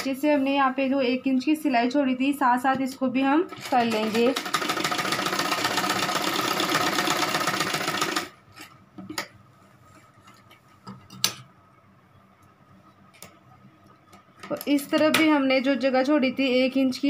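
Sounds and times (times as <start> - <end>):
sewing machine running fast: 3.5 - 8.3.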